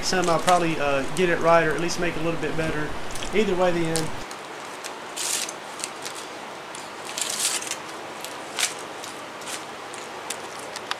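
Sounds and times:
aluminium foil crinkling: 0:00.0 - 0:02.0, 0:03.1 - 0:10.9
steady hiss: 0:00.0 - 0:10.2.

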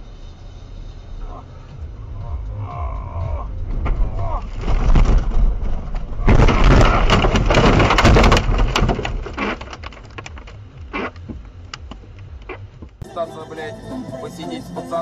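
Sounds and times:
car crashing through snow and brush: 0:03.6 - 0:11.4.

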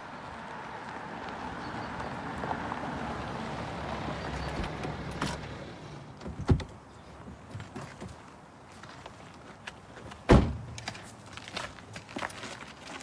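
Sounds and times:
car door shutting: 0:10.3 - 0:10.6.

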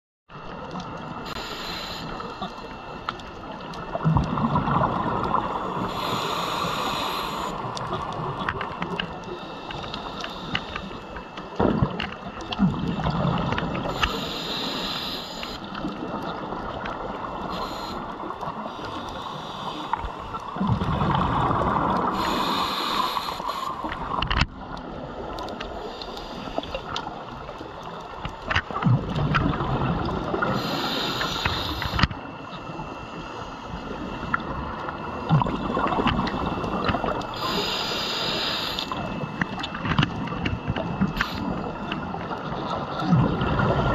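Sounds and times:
faint clicks: 0:00.5 - 0:04.4, 0:05.2 - 0:12.6, 0:21.8 - 0:29.5, 0:30.3 - 0:32.6
diver breathing through regulator: 0:05.6 - 0:07.8, 0:09.2 - 0:11.3, 0:13.8 - 0:15.8, 0:17.4 - 0:20.3, 0:22.1 - 0:24.0, 0:30.4 - 0:32.1, 0:37.2 - 0:39.2.

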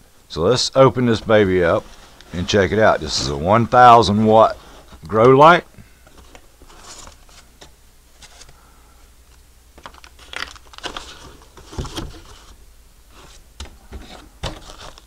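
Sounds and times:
cardboard and packing rustling: 0:06.0 - 0:08.6, 0:09.8 - 0:15.0.

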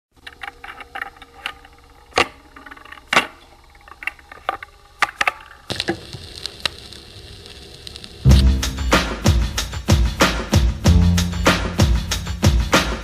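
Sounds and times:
sharp irregular clicks and cracks: 0:00.2 - 0:08.1
song with heavy beat: 0:08.3 - 0:13.0.

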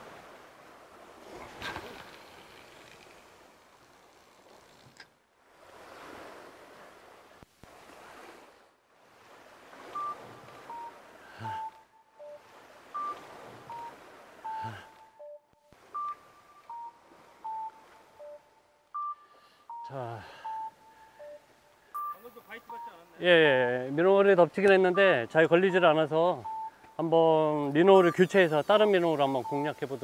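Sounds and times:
waves washing on rocks: 0:00.0 - 0:04.9, 0:27.0 - 0:30.0
beeping melody music: 0:13.0 - 0:23.8, 0:24.7 - 0:28.3.

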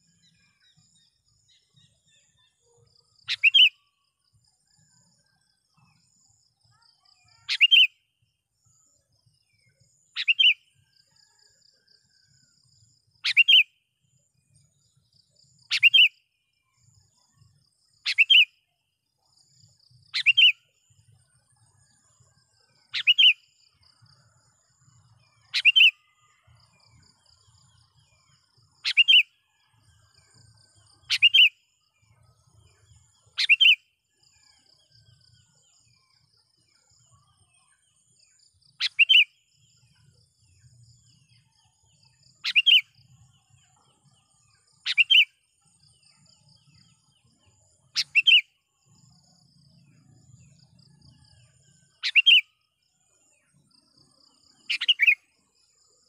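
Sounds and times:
faint high insect chirring: 0:00.0 - 0:56.0.

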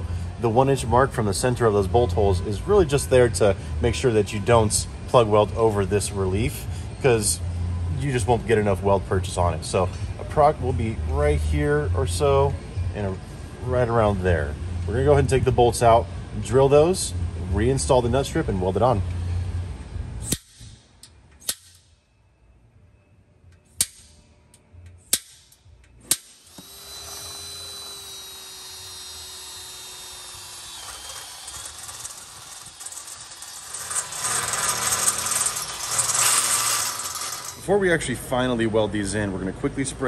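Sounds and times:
power drill boring through steel: 0:26.2 - 0:37.7.

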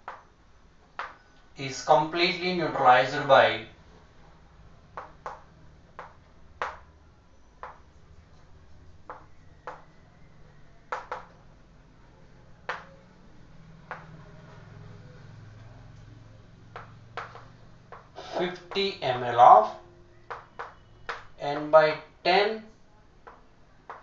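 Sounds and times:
chalk tapping on chalkboard: 0:05.0 - 0:06.9, 0:07.6 - 0:07.8, 0:08.9 - 0:09.9, 0:16.7 - 0:18.8.

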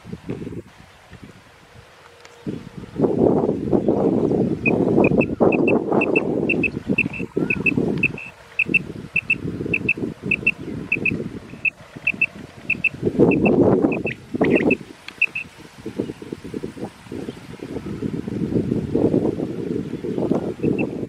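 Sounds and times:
quail caller high double notes: 0:04.7 - 0:11.2.

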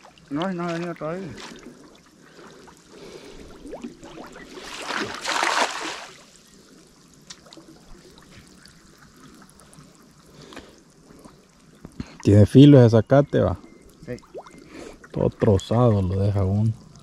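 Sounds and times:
water splashing: 0:00.0 - 0:06.4
water trickling and dripping: 0:00.0 - 0:17.0.

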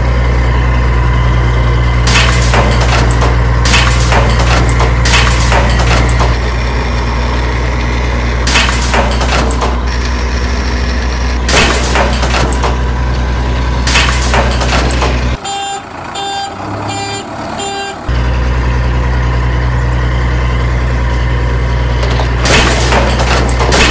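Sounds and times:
heavy truck engine running: 0:00.0 - 0:23.9
reversing alarm beeping: 0:15.4 - 0:18.4.

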